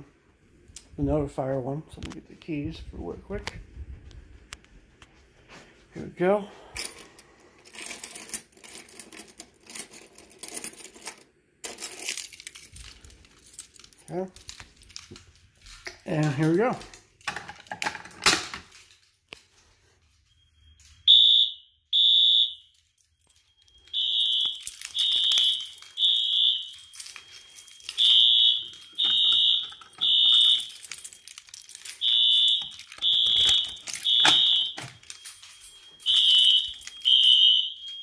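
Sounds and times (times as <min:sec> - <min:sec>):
fire alarm horns beeping: 0:20.0 - 0:38.0.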